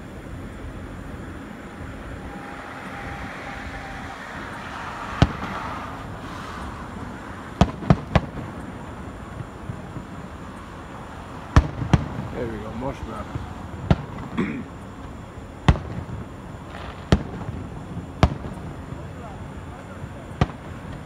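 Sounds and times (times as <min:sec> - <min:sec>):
steady background noise: 0:00.0 - 0:21.0
firework shells bursting: 0:01.7 - 0:12.8.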